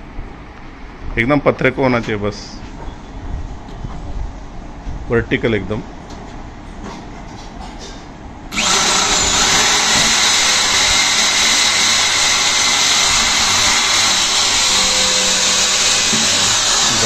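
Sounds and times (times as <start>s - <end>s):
electric drill boring into steel: 8.5s - 17.0s.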